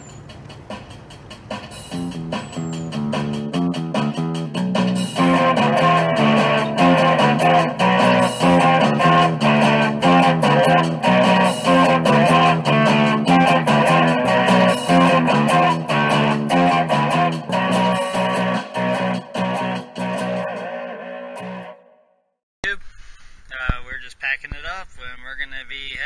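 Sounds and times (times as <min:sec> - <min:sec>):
guitar-led instrumental music: 0:01.4 - 0:22.0.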